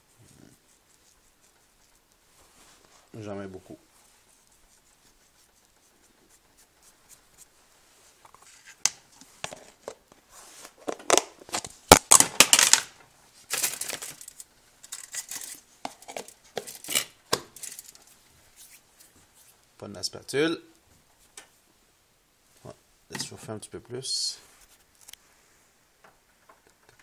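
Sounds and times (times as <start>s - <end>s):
clatter of handling: 13.5s - 18.0s
pepper mill grinding: 13.5s - 18.0s.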